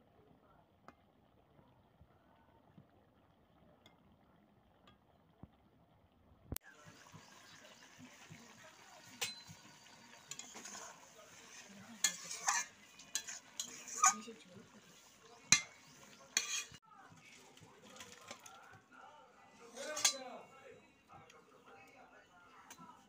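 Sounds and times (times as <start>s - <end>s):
curry simmering: 0.0s - 23.0s
metal spatula scraping pan: 9.0s - 18.4s, 19.5s - 20.5s.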